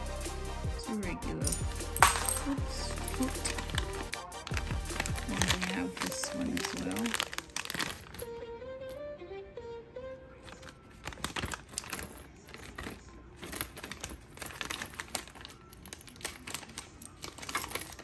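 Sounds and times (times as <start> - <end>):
background music: 0.0 - 18.0
plastic bag crinkling: 2.0 - 8.4, 10.4 - 18.0.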